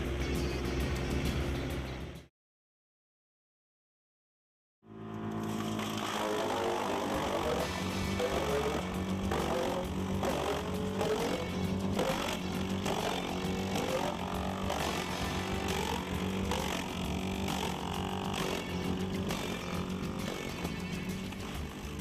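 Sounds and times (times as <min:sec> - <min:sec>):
engine drone: 0:04.8 - 0:22.0
wood chipper chipping logs: 0:05.1 - 0:22.0.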